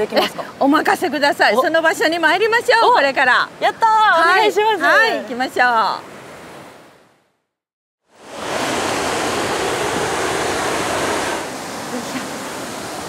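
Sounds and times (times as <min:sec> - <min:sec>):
waterfall rushing: 0:08.2 - 0:13.0.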